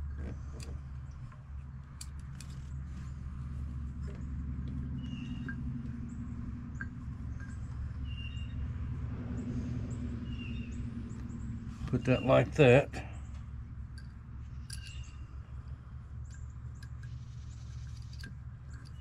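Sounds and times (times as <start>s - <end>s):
metal shackle clicking: 0.0s - 2.9s, 13.8s - 19.0s
low mechanical hum: 0.0s - 19.0s
bird chirps: 4.9s - 12.5s, 14.6s - 15.3s.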